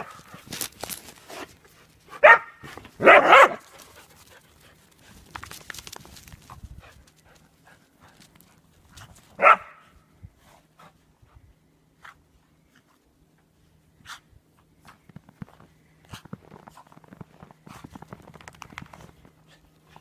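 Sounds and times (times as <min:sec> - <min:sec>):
dogs barking: 0:02.2 - 0:03.7, 0:09.4 - 0:09.8.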